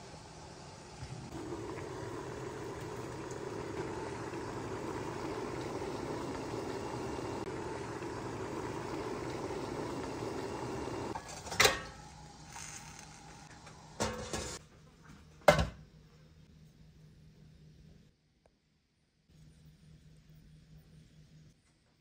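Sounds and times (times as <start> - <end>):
stovetop rushing noise: 0.0 - 14.6
kitchenware clattering: 14.0 - 14.6.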